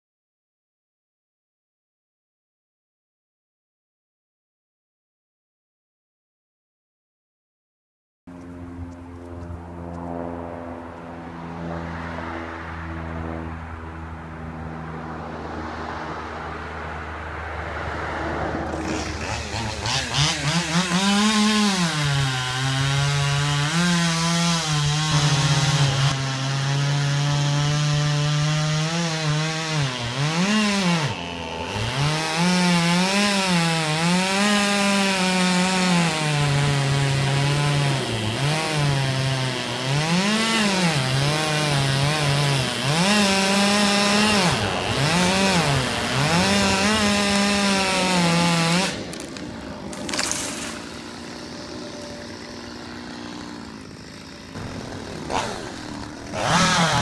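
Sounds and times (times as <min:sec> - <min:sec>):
chainsaw cutting tree trunk: 0:18.3 - 0:57.0.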